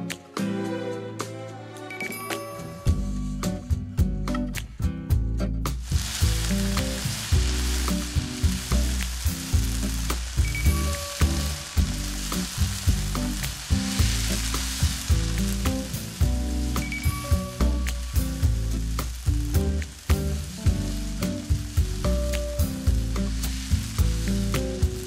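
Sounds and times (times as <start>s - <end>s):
garlic sizzling in hot oil: 5.8s - 25.0s.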